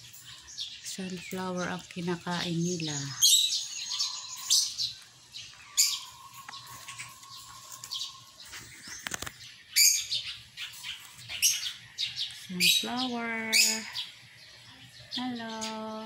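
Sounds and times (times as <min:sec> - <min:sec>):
parrots giving shrill calls: 0:03.2 - 0:05.0, 0:05.7 - 0:08.4.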